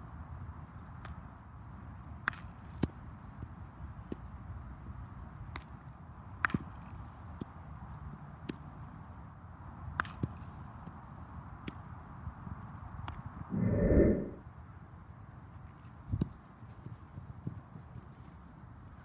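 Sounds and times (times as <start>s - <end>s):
low rumble: 13.5s - 14.4s.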